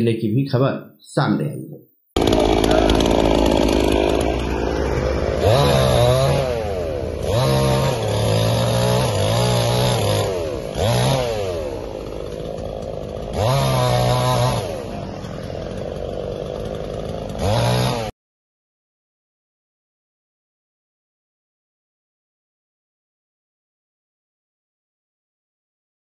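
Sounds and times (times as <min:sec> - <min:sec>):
chainsaw revving and idling: 0:02.2 - 0:18.1.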